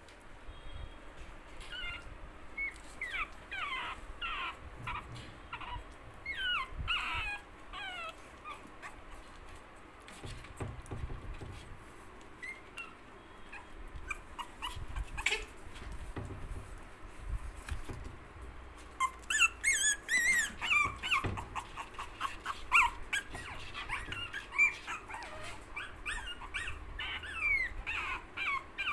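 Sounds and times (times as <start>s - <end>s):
puppies whimpering and yipping: 1.5s - 9.4s, 12.3s - 16.0s, 18.9s - 28.9s.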